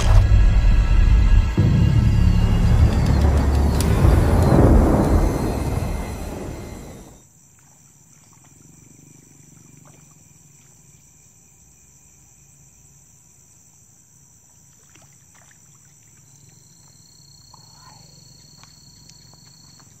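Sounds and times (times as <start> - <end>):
loud noise: 0.0 - 7.2
low hum: 0.0 - 7.2
insect chorus: 0.0 - 20.0.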